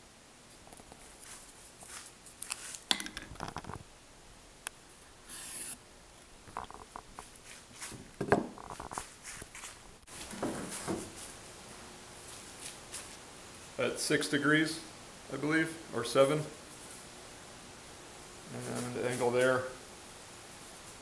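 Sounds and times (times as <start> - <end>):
short hissing scrape: 5.3 - 5.8
wood knocking and scraping: 7.9 - 9.1, 10.2 - 11.2.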